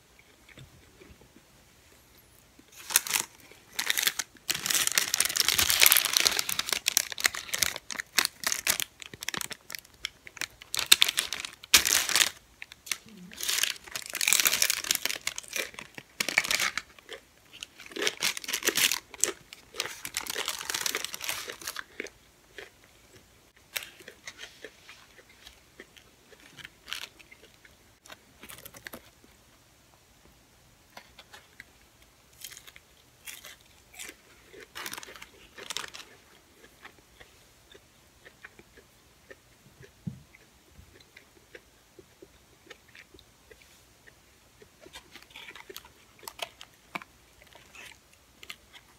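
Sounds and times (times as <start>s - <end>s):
crunching and chewing taco: 2.6s - 29.4s, 31.0s - 48.9s
paper wrapper crinkling: 2.7s - 21.9s, 34.7s - 36.2s.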